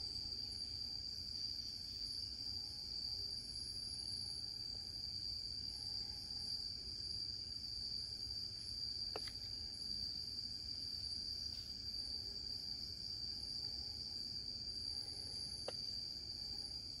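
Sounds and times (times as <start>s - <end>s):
insect chorus drone: 0.0s - 17.0s.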